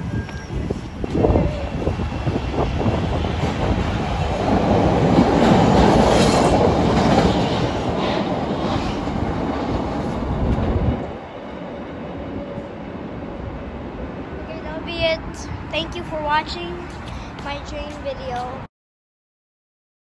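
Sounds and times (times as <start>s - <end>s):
train wheels running on rails: 0.0s - 12.8s.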